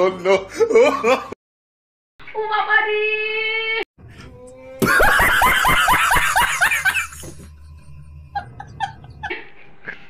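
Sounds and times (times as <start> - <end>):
man cackling laughter: 4.8 - 7.5, 8.3 - 10.0.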